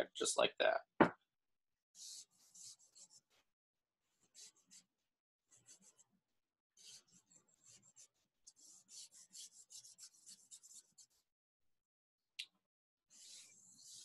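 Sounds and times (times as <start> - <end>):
drawing tool scratching paper: 2.0 - 6.2, 6.8 - 11.3, 13.1 - 14.0.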